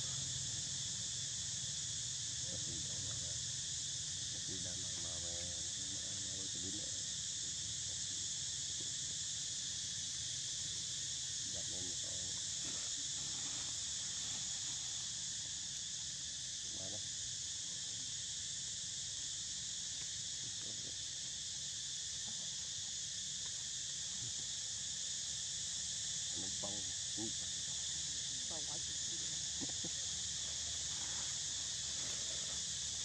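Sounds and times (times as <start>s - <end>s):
insect chorus drone: 0.0s - 33.0s.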